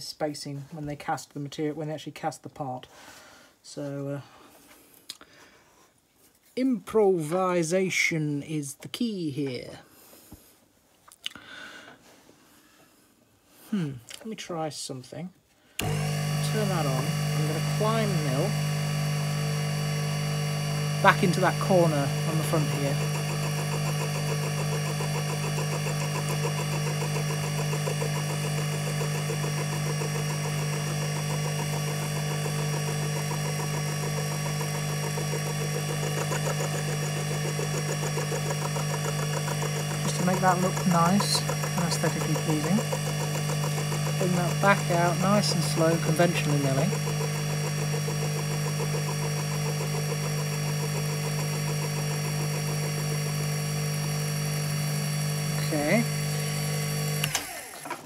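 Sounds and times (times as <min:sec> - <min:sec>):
milling machine running: 0:15.8 - 0:58.0.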